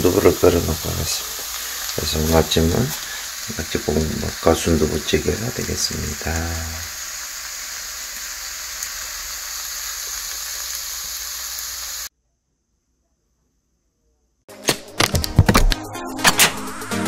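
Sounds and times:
food sizzling in frying pan: 0:00.0 - 0:12.1.

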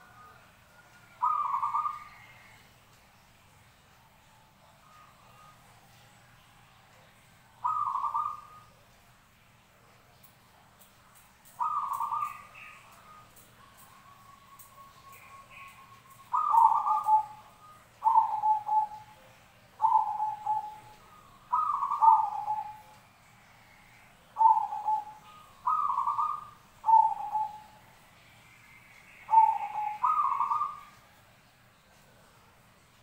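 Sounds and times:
dove cooing: 0:01.1 - 0:02.6, 0:07.6 - 0:08.7, 0:11.6 - 0:22.9, 0:23.6 - 0:27.9, 0:29.1 - 0:31.0.

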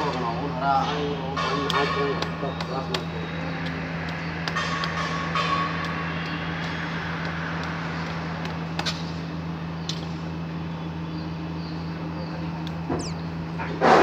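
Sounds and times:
machinery humming: 0:03.0 - 0:13.8.

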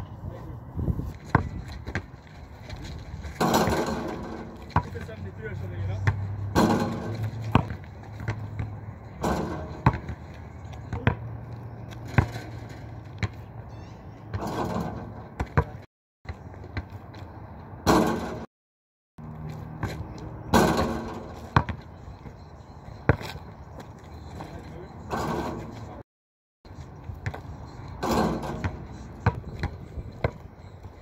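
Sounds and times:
basketball bouncing on asphalt: 0:01.1 - 0:05.3, 0:06.0 - 0:18.5, 0:19.2 - 0:25.7, 0:26.7 - 0:31.0
ball hitting backboard and rim: 0:03.3 - 0:05.2, 0:06.0 - 0:11.3, 0:12.0 - 0:13.5, 0:14.3 - 0:17.0, 0:17.8 - 0:18.5, 0:19.8 - 0:21.8, 0:25.1 - 0:25.8, 0:27.2 - 0:30.4.

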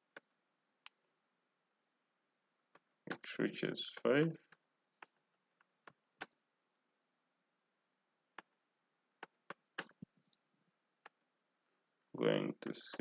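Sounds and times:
slow typing on keyboard: 0:04.4 - 0:06.4, 0:09.2 - 0:10.2, 0:12.8 - 0:13.0.

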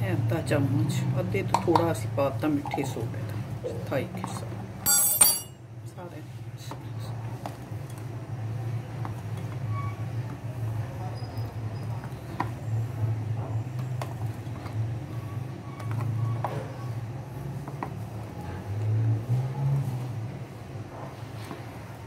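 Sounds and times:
utensil clinking on glass: 0:04.8 - 0:05.6.

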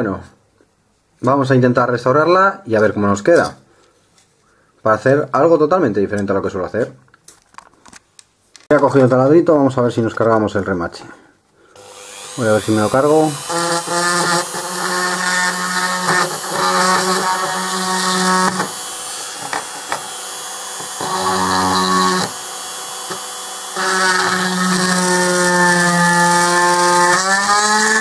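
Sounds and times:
rotary drill grinding metal: 0:11.8 - 0:28.0.

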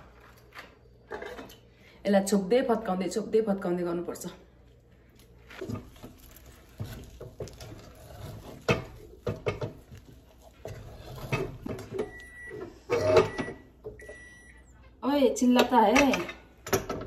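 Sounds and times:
wooden spoon scraping a saucepan: 0:05.5 - 0:12.2.

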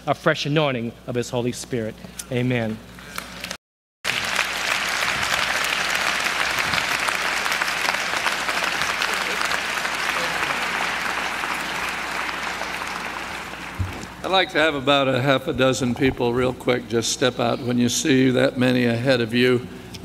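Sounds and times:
audience applauding: 0:04.0 - 0:14.4.

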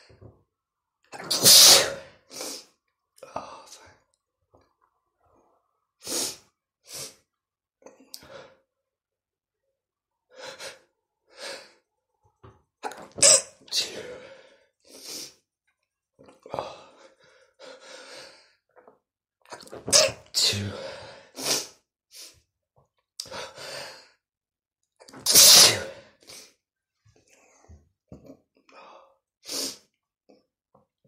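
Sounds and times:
man sneezing: 0:01.2 - 0:02.1, 0:19.8 - 0:20.9, 0:25.2 - 0:26.1.

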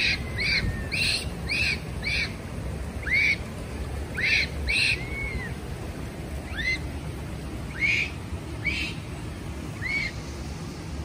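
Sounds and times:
monkey coo calls: 0:00.0 - 0:02.4, 0:03.0 - 0:03.4, 0:04.1 - 0:05.6, 0:06.5 - 0:06.9
low steady rumble: 0:00.0 - 0:11.0.

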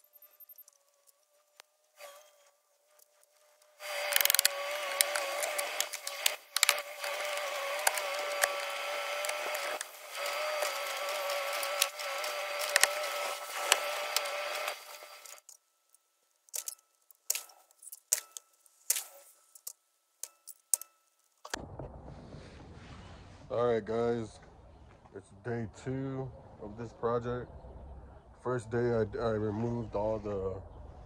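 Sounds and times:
power drill motor whining: 0:00.7 - 0:15.5
sharp clicks: 0:03.8 - 0:15.6.

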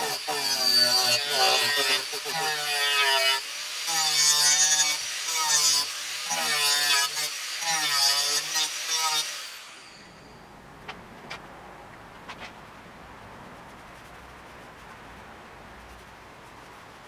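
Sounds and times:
angle grinder on wood: 0:00.0 - 0:10.4.

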